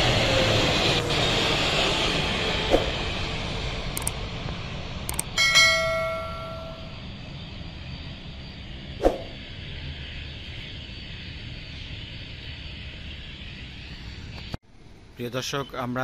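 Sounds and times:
airliner engine noise: 0.0 - 16.0
bell-like metallic ring: 5.3 - 7.1.

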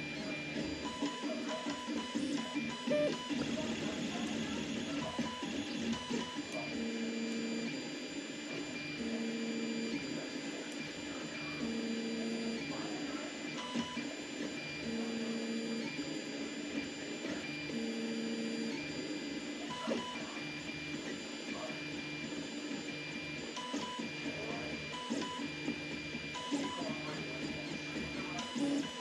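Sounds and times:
stepper motors singing: 0.0 - 7.8, 21.7 - 29.0.

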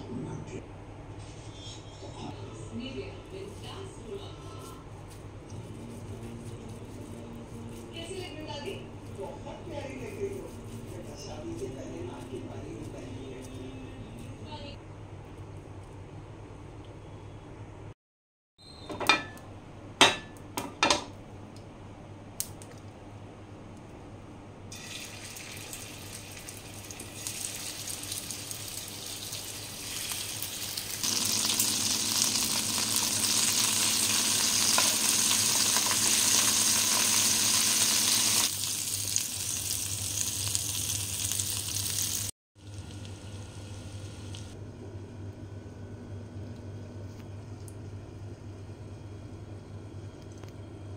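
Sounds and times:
meat sizzling in hot oil: 24.7 - 44.6.

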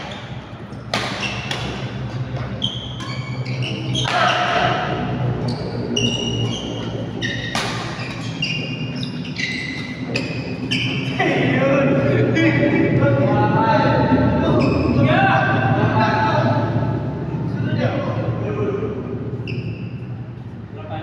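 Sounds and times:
racket striking shuttlecock: 0.0 - 5.0, 7.4 - 8.4
shoes squeaking on court: 0.0 - 11.3, 14.5 - 15.0, 19.4 - 20.6
steady low hum: 0.0 - 21.0.

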